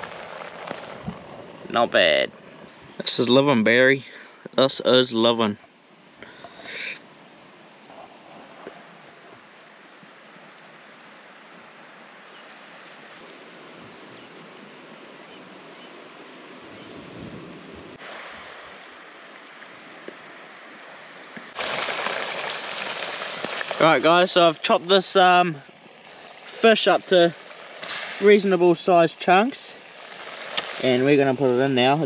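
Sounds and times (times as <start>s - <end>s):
sea surf washing on shore: 0.0s - 3.4s, 13.2s - 32.0s
bright hiss: 26.6s - 31.9s.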